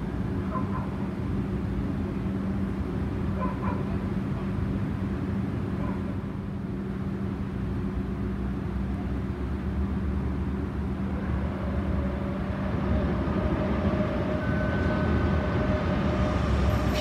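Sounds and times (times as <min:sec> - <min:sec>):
train low rumble: 0:00.0 - 0:17.0
high two-tone whine: 0:11.1 - 0:17.0.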